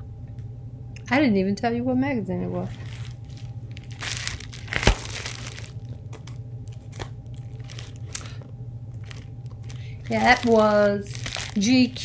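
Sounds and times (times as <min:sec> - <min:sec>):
plastic mailer rustling and crinkling: 0:02.6 - 0:12.0.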